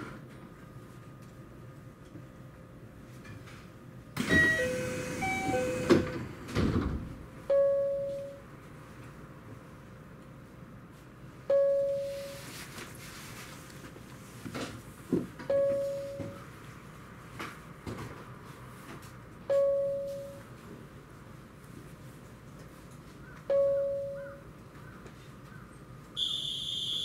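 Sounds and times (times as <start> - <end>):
single chime tone: 7.5 - 8.4, 11.5 - 12.4, 15.5 - 16.4, 19.5 - 20.4, 23.5 - 24.3.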